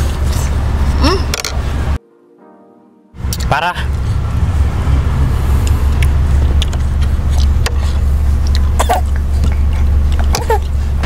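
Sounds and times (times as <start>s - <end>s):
car engine idling: 0.0s - 2.0s, 3.2s - 11.0s
eating: 5.5s - 10.9s.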